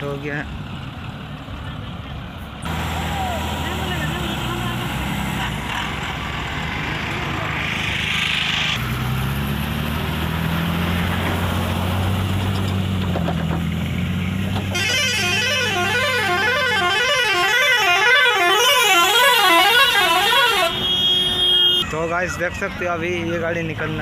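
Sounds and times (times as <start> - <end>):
truck diesel engine running: 0.0 - 20.9
warbling vehicle horn: 14.7 - 21.9.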